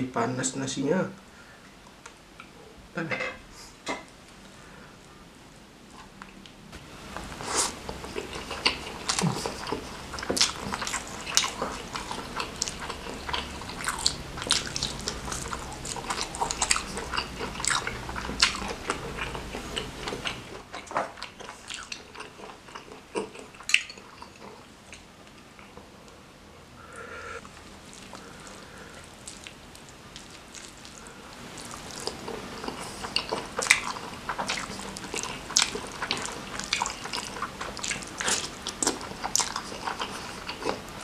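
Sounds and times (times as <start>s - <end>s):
person chewing with lip smacks: 7.4s - 25.7s, 27.4s - 40.9s.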